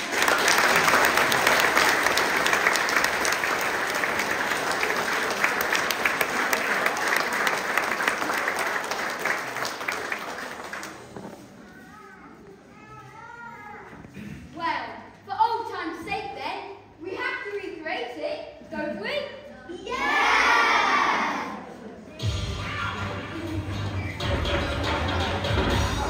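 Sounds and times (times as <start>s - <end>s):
audience applauding: 0.0s - 11.2s.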